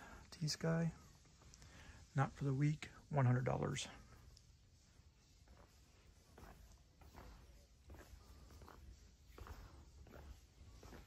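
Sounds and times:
footsteps on concrete: 5.2 - 11.0.

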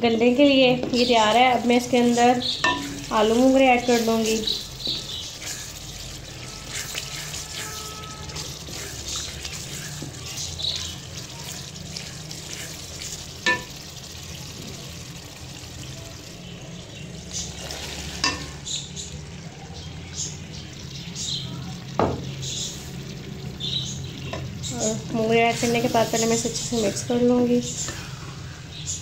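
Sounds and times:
masala sizzling in oil: 0.0 - 29.0
wooden spoon stirring and scraping: 0.3 - 14.0, 17.3 - 18.8, 25.2 - 28.4.

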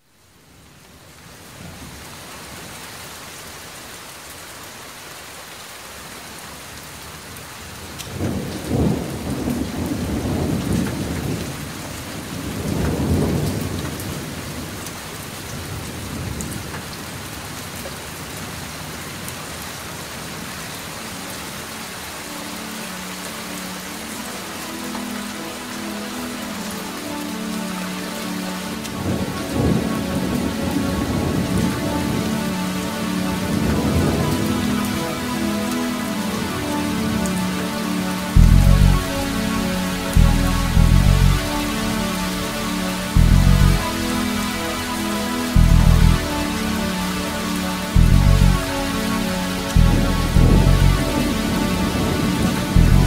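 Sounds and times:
steady rain hiss: 0.0 - 53.0
sustained musical notes: 21.8 - 53.0
thunder rolling: 49.8 - 52.2.

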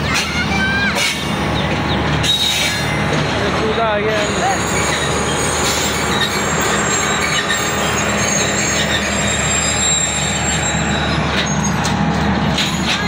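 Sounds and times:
train wheels rumbling on track: 0.0 - 13.0
faint high wheel squeal: 2.2 - 3.0, 4.1 - 13.0.

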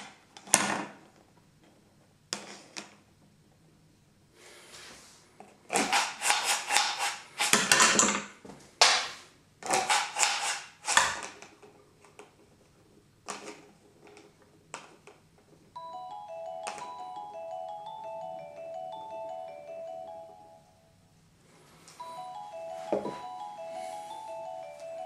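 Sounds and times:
phone timer alarm melody: 15.8 - 21.0, 22.0 - 25.0.

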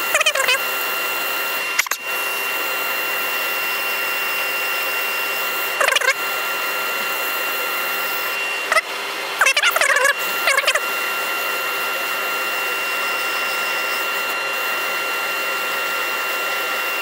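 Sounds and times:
lathe sanding whirring hiss: 0.0 - 17.0
short wavering squeal: 5.7 - 6.2, 8.1 - 10.8.

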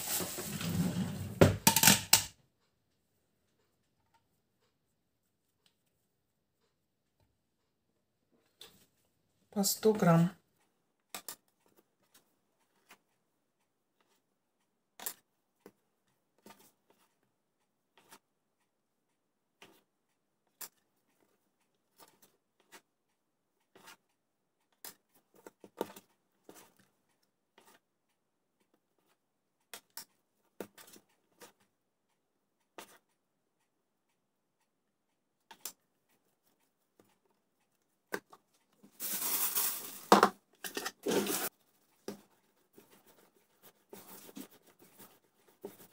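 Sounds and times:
rustling handling noise: 0.0 - 1.9, 38.2 - 45.9
dough set on kitchen scale: 0.0 - 2.9, 38.1 - 45.9.

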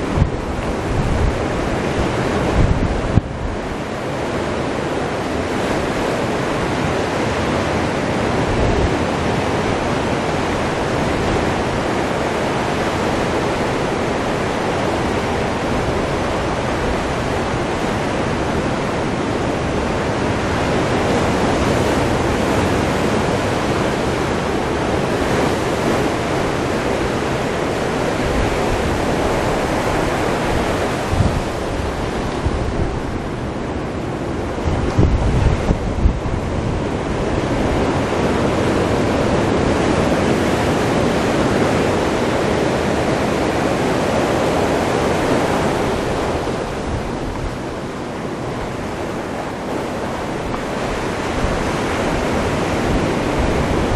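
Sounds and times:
surf washing up a beach: 0.0 - 53.9
wind buffeting microphone: 0.0 - 53.9.

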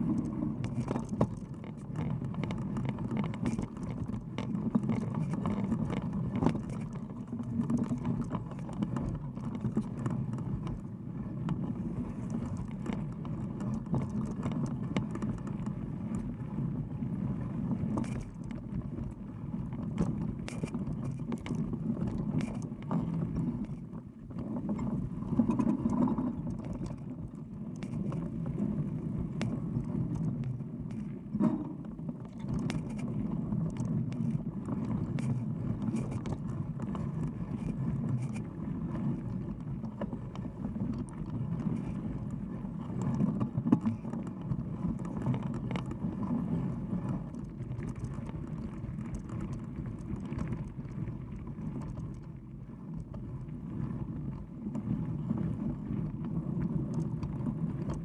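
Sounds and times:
bike tyre rolling on dirt: 0.0 - 58.0
clicks and rattles from bumps: 0.1 - 11.6, 12.2 - 16.2, 17.9 - 28.3, 29.3 - 38.4, 43.0 - 46.1.

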